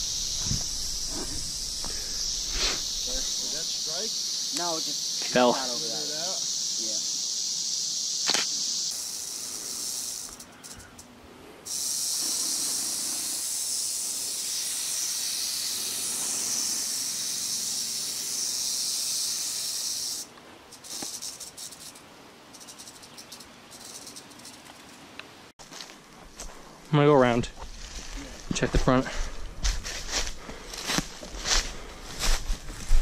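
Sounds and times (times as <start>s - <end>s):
rattlesnake rattling: 0.0s - 25.1s.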